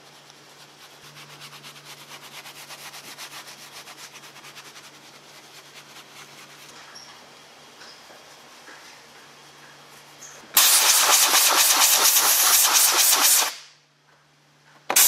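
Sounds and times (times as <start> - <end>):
brush scrubbing leather: 0.0 - 6.8
low steady hum: 0.0 - 10.6.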